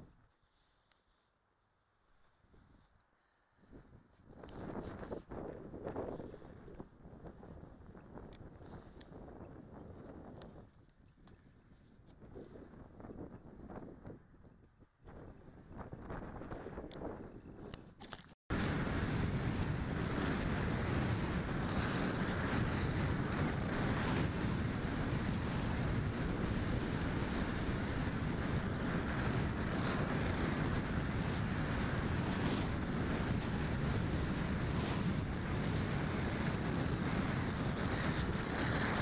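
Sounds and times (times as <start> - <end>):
wind rushing over microphone: 3.6 - 39.0
high motor whine: 18.5 - 39.0.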